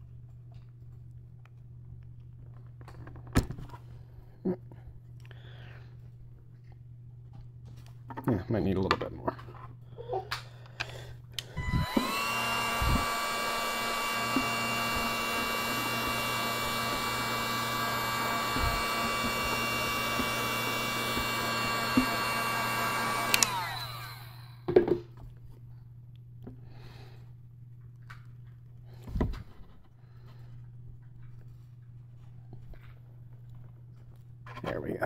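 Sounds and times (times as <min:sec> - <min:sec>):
heat gun fan whine: 0:10.6 - 0:25.0.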